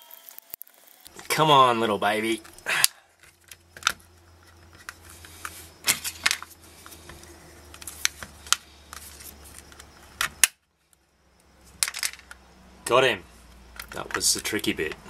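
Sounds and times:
plastic clicking and creaking: 2.4 - 11.0.

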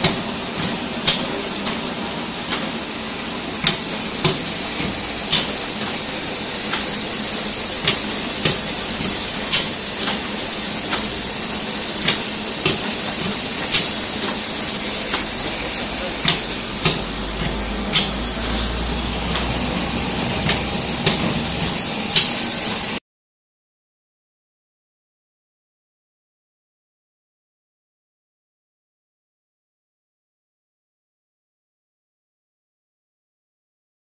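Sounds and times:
pneumatic machine clacking: 0.0 - 23.0
steady air hiss: 0.1 - 23.0.

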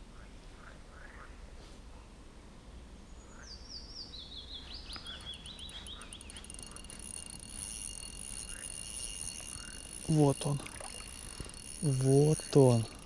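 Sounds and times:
songbird singing descending notes: 3.7 - 10.1
steady high whirr: 5.0 - 13.0.

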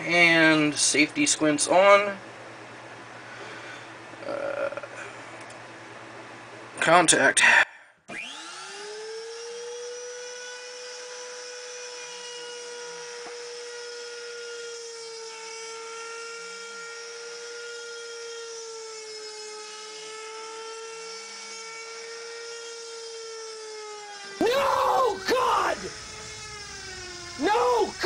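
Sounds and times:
router whining while cutting metal: 8.1 - 28.0.

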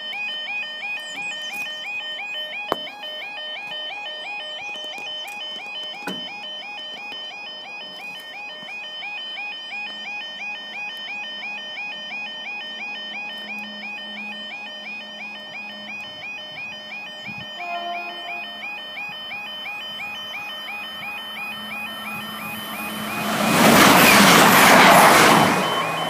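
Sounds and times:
level crossing alarm warbling: 0.0 - 26.0.

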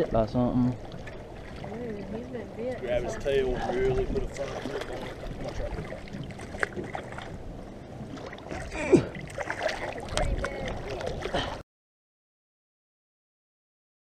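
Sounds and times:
wind on microphone: 1.0 - 11.6
fish thrashing and splashing: 4.0 - 7.5, 8.1 - 11.6.

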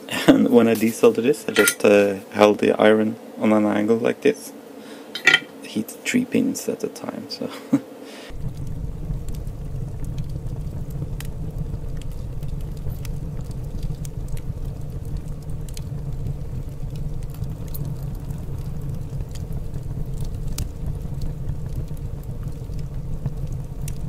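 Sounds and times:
flux crackling under soldering iron: 8.3 - 24.0
steady low rumble: 8.3 - 24.0.

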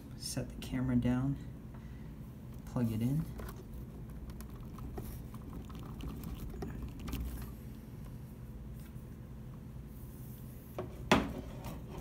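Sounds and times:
low steady rumble: 0.0 - 10.8.

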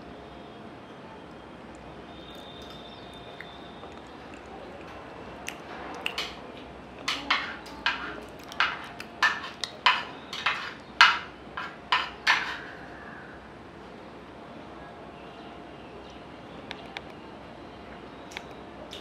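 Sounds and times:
eating clicks: 1.7 - 9.9.

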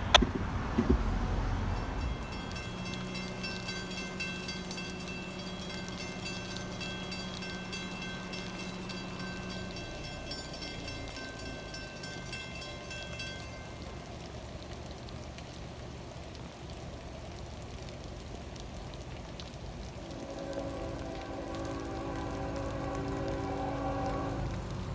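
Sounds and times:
rain falling: 0.0 - 24.9
steady tones: 1.7 - 14.0, 19.8 - 24.9
chord of steady tones: 1.7 - 14.3, 19.8 - 24.9.

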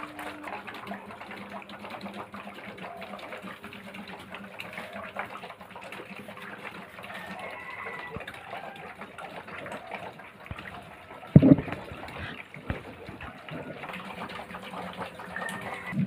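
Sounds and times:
loud thump: 11.4 - 11.7.

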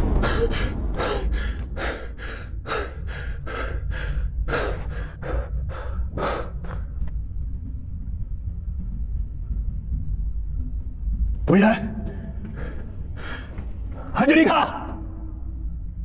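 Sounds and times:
man panting hard: 0.0 - 7.0
steady low rumble: 0.0 - 16.0.

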